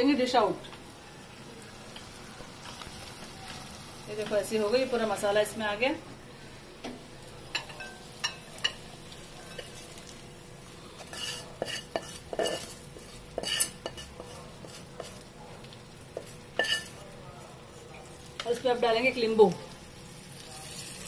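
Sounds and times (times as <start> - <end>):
spatula scraping a pan: 11.0 - 15.2, 16.6 - 17.0.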